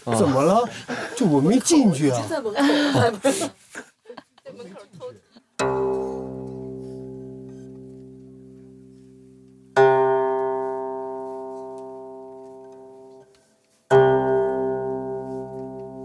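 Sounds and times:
plucked zither notes: 5.6s - 13.3s, 13.9s - 16.0s.

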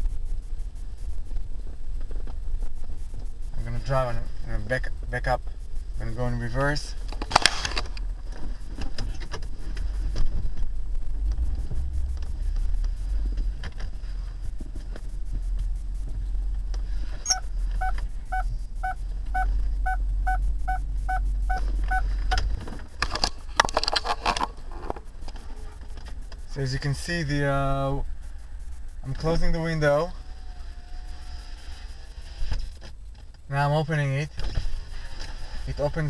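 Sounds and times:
car engine low rumble: 0.0s - 36.0s
reverse sensor beeps: 17.2s - 22.4s.

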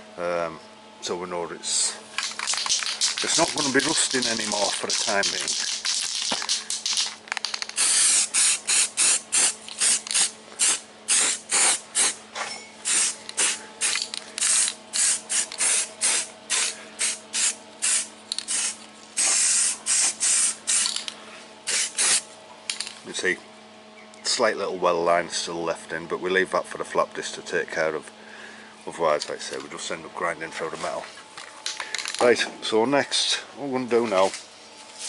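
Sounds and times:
aerosol can spraying: 2.2s - 12.2s, 12.8s - 21.0s, 21.7s - 22.2s.

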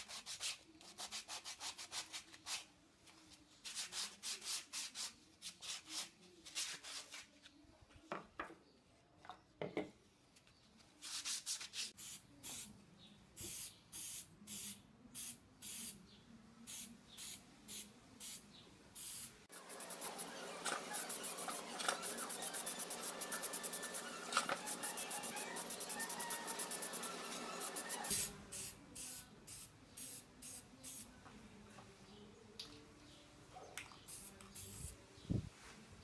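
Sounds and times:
spray-paint can hissing: 12.0s - 12.7s, 13.4s - 16.0s, 16.7s - 18.4s, 19.0s - 31.1s, 34.1s - 34.9s.

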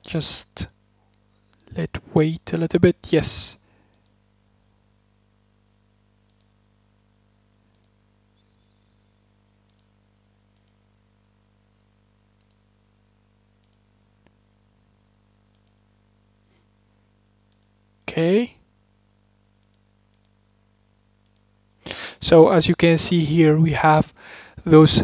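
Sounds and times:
steady low hum: 0.0s - 25.0s
computer mouse clicks: 3.9s - 4.2s, 6.2s - 6.6s, 7.7s - 8.0s, 9.6s - 10.8s, 12.4s - 12.7s, 13.6s - 14.4s, 15.5s - 15.8s, 17.5s - 17.8s, 19.6s - 20.4s, 21.2s - 21.5s.

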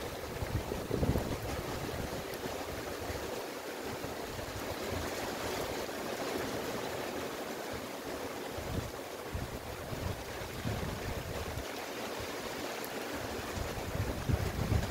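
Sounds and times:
wind gusts rumbling: 0.0s - 3.0s, 8.5s - 11.7s, 13.4s - 14.9s
rain falling on trees: 0.0s - 14.9s.

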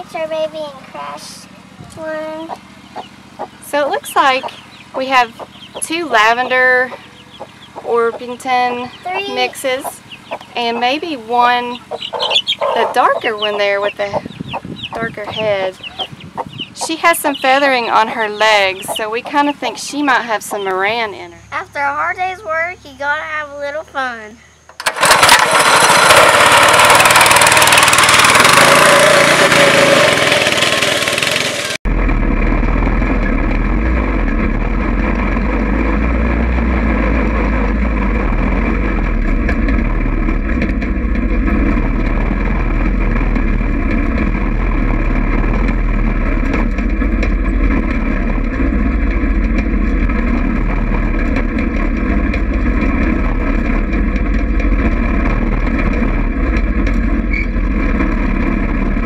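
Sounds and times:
go-kart engine drone: 0.0s - 22.8s, 24.8s - 59.0s
rushing noise by rear wheel: 24.8s - 59.0s.

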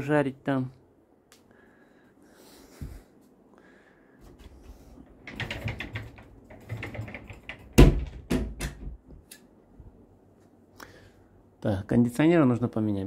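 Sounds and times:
irregular clicks and knocks: 4.4s - 9.4s.

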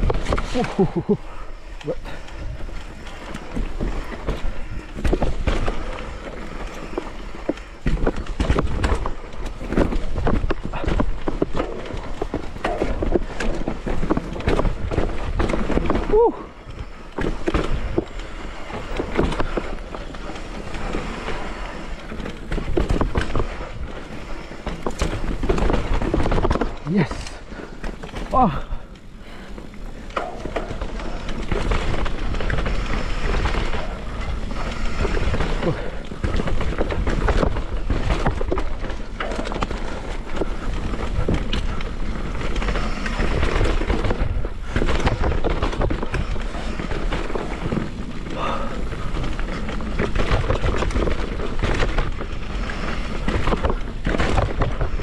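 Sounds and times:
bike knocks and rattles: 0.0s - 55.0s
tyre noise on dirt: 0.0s - 55.0s.

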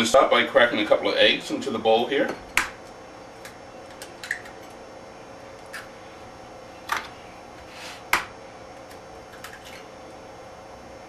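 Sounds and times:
eggs cracking on glass bowl: 3.4s - 4.8s.

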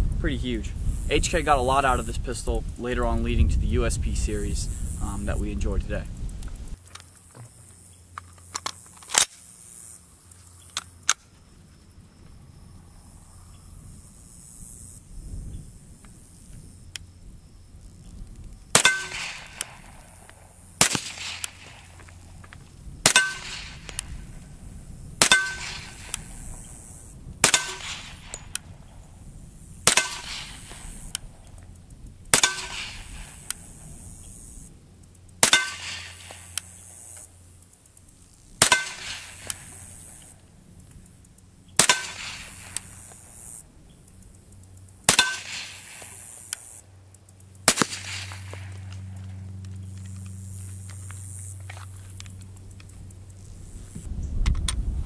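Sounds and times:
suppressed pistol shots: 18.7s - 20.0s, 20.8s - 22.0s, 23.0s - 24.1s, 25.2s - 26.7s, 27.4s - 28.6s, 29.8s - 31.3s, 32.3s - 33.9s, 35.4s - 36.7s, 38.6s - 40.1s, 41.8s - 43.2s, 45.1s - 46.4s, 47.6s - 49.0s
steel plate target ringing: 18.8s - 19.6s, 23.1s - 23.8s, 25.2s - 26.1s, 27.4s - 28.5s, 32.4s - 33.2s, 35.4s - 36.2s, 38.6s - 39.4s, 45.1s - 45.8s.

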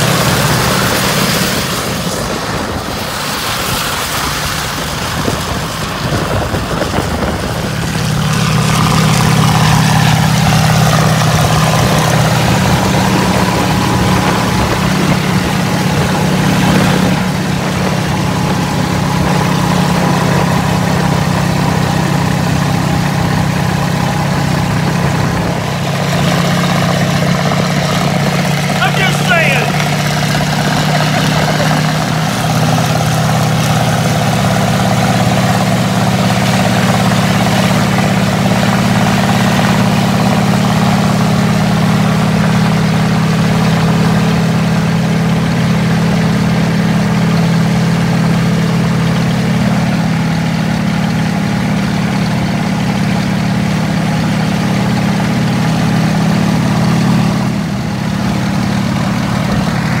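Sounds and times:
tank tracks: 0.0s - 40.3s
tank engine droning: 0.0s - 60.0s.

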